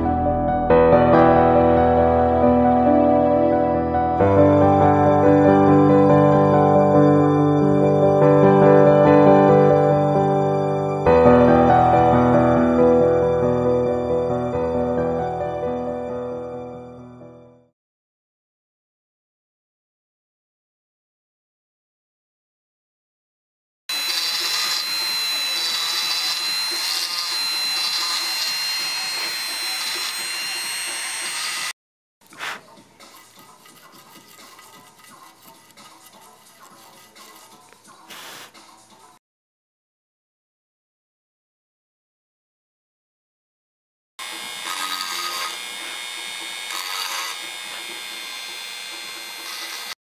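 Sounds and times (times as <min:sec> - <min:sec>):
bit grinding: 0:23.9 - 0:31.7, 0:44.2 - 0:50.0
rotary tool whining: 0:23.9 - 0:37.7, 0:44.2 - 0:50.0
bit grinding on glass bottle: 0:32.4 - 0:37.7, 0:44.8 - 0:45.6.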